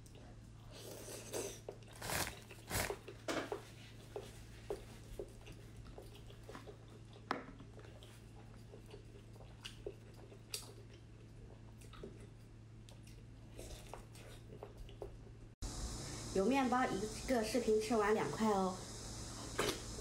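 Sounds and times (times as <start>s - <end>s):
person chewing meat: 0.0s - 15.4s
steady low hum: 3.8s - 20.0s.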